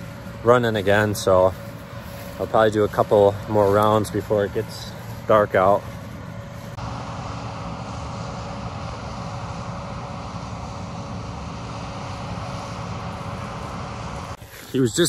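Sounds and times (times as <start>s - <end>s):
combine harvester running: 0.0s - 15.0s.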